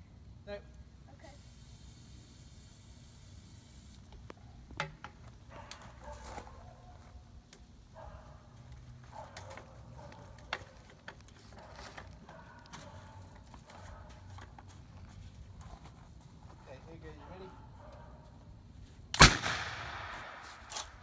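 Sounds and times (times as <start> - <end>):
soft scraping and rustling: 8.6 - 17.0.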